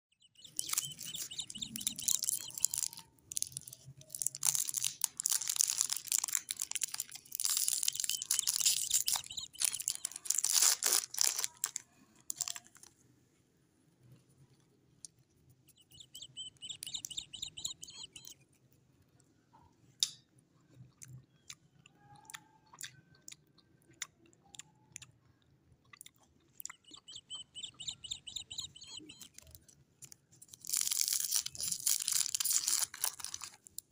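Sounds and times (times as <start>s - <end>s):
cellophane wrapper crinkling: 0.4s - 13.0s, 28.7s - 33.9s.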